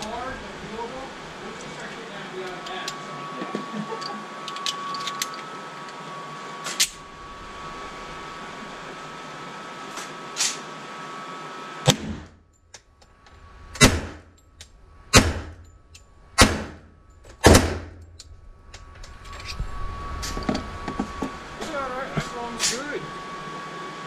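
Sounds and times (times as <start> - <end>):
metallic gun handling clicks: 4.0 - 5.5
pistol gunshots with echo: 13.8 - 14.2, 15.1 - 15.6, 16.4 - 16.8, 17.4 - 18.0.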